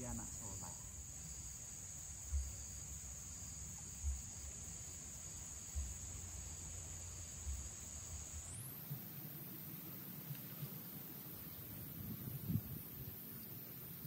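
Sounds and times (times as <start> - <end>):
insects droning: 0.0 - 14.0
low muffled thumps: 2.2 - 4.8, 5.6 - 6.6, 7.4 - 8.2.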